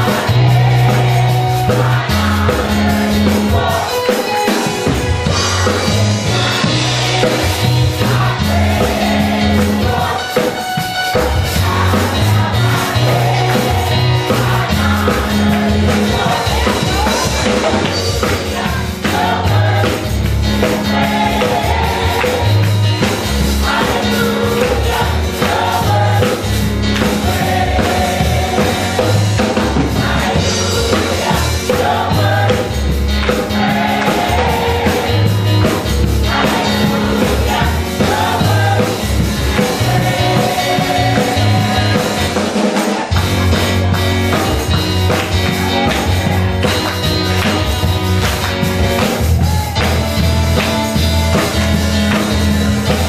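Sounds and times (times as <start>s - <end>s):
gospel choir singing: 0.0s - 49.5s
repeating bass notes: 0.0s - 53.0s
hand-clapping: 42.7s - 53.0s.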